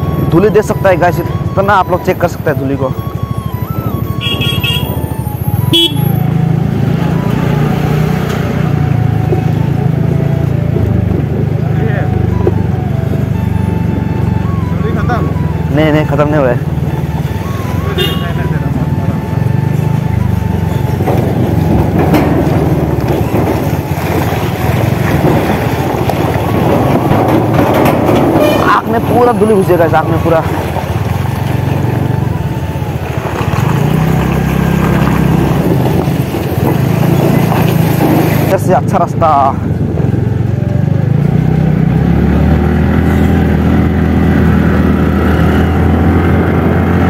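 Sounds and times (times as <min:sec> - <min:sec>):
truck engine: 0:00.0 - 0:47.0
scooter engine rumble: 0:02.5 - 0:38.6
knocks and rattles: 0:20.0 - 0:29.4.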